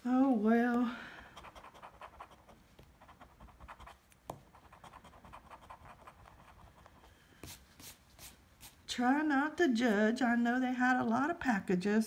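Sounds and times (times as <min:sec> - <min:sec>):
coin scratching lottery ticket: 0:01.4 - 0:04.0.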